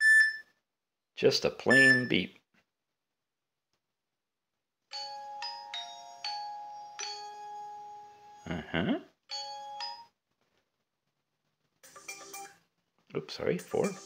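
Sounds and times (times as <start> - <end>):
smartwatch notification chime: 1.7 - 2.1.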